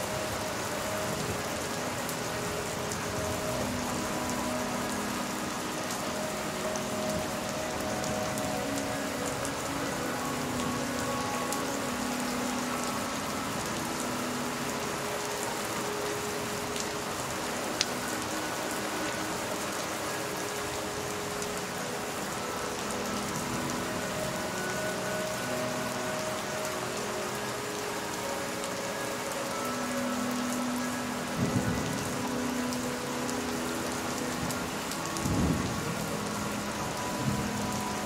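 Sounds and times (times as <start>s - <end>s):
steady rain hiss: 0.0s - 38.0s.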